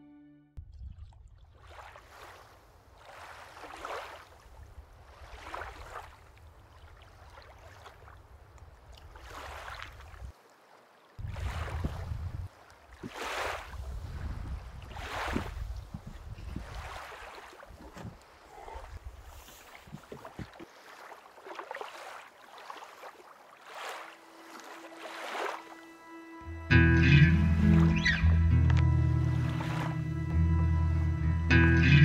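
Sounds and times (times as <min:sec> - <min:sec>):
paddle splashing in water: 0:00.7 - 0:25.9, 0:28.7 - 0:30.0
wind on microphone: 0:11.2 - 0:12.5, 0:13.7 - 0:20.6.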